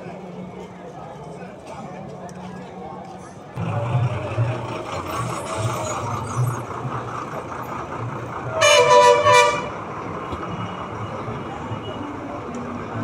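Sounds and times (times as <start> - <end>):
low engine rumble of traffic: 0.0 - 13.0
vehicle horn toot: 8.6 - 9.7.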